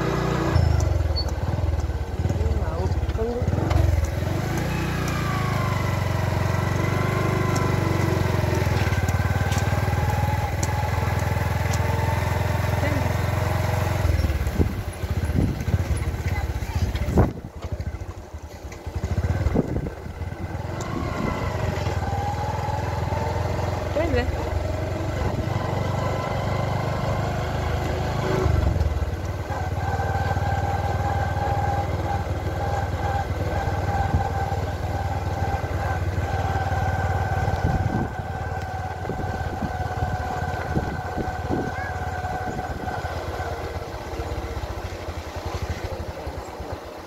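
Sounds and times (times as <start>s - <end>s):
motorcycle engine running: 0.0s - 47.0s
wind rumbling on microphone: 14.4s - 18.0s, 19.0s - 22.0s, 37.4s - 43.8s.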